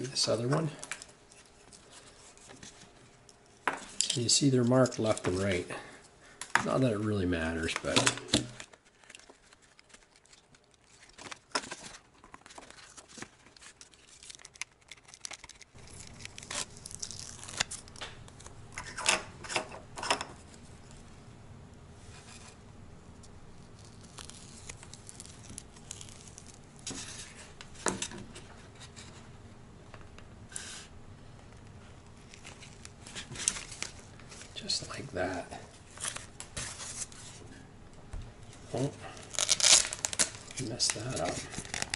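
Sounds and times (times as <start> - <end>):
handling rustles and clicks: 7.6 - 16.4
short tearing rips: 13.9 - 18.0, 39.2 - 41.9.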